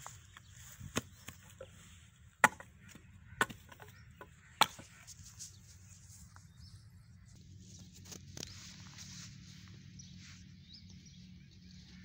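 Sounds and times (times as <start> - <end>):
firewood sticks knocking on ground: 0.8 - 5.0.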